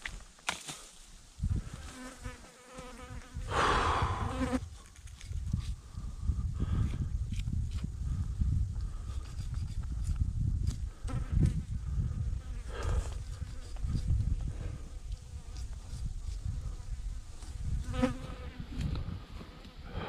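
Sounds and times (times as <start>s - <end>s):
fly buzzing: 1.4s - 4.8s, 10.9s - 20.0s.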